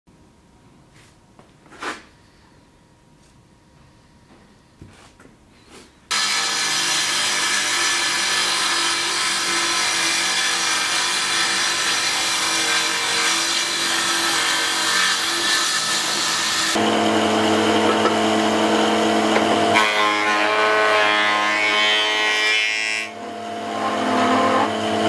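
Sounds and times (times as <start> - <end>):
table saw cutting wood: 6.1 - 25.0.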